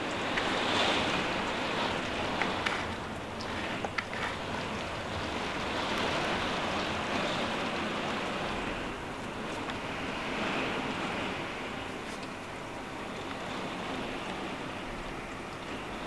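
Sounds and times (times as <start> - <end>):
raindrops tapping close by: 0.0 - 8.5
heavy rain pouring: 0.0 - 16.0.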